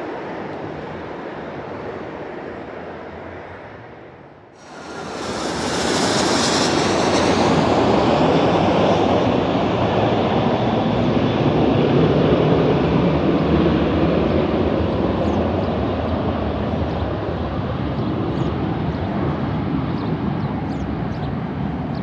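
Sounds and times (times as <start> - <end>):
high hissing whine: 4.6 - 10.1
jet airliner passing low: 4.6 - 21.9.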